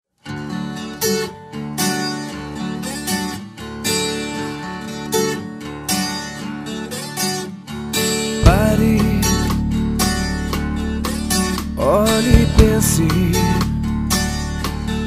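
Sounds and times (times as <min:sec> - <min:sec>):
strummed acoustic guitar: 0:00.2 - 0:15.0
low musical accompaniment: 0:08.4 - 0:15.0.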